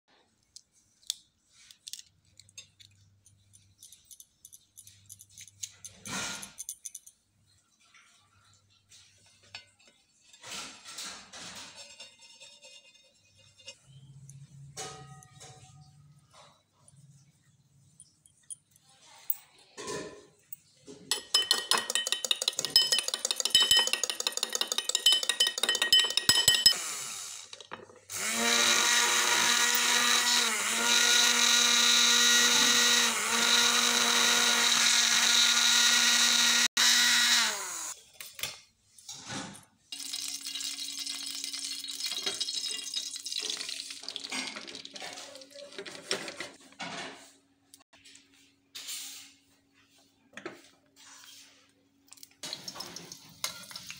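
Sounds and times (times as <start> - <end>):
eggs beaten in a glass clinking: 21.0 - 26.8, 40.0 - 44.9
immersion blender whining: 26.7 - 38.0
egg mixture crackling in a pan: 39.9 - 45.6.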